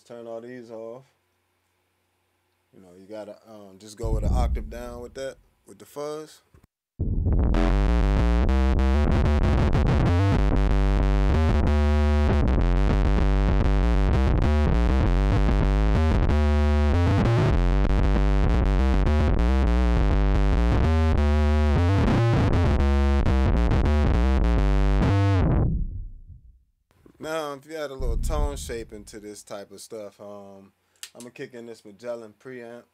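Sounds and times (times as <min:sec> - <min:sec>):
distorted electric bass: 0:04.0 - 0:05.4, 0:07.0 - 0:26.6, 0:28.0 - 0:29.2.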